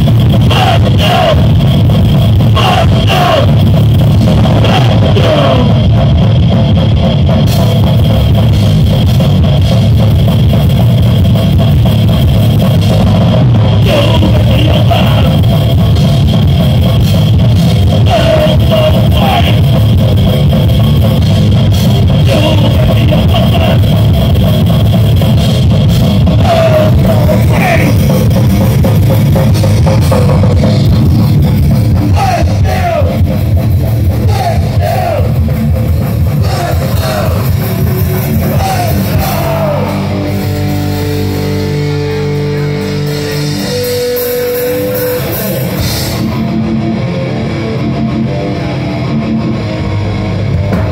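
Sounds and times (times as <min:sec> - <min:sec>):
electric guitar notes bending: 0:00.0 - 0:50.9
loud distorted rock band: 0:00.0 - 0:50.9
sustained guitar notes ringing: 0:35.4 - 0:50.7.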